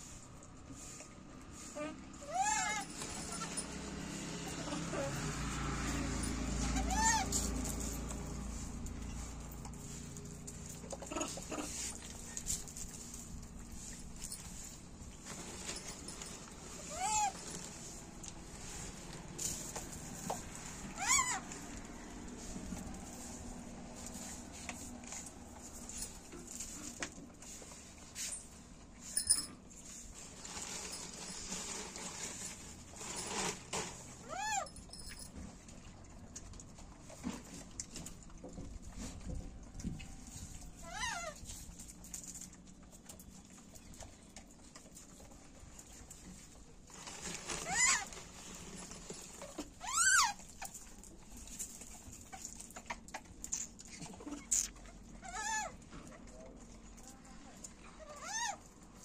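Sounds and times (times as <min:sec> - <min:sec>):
monkeys chewing and rustling food: 0:00.0 - 0:59.0
monkey squealing scream: 0:02.2 - 0:03.6, 0:06.8 - 0:07.4, 0:16.9 - 0:17.4, 0:20.9 - 0:21.5, 0:40.8 - 0:41.4, 0:49.8 - 0:50.4.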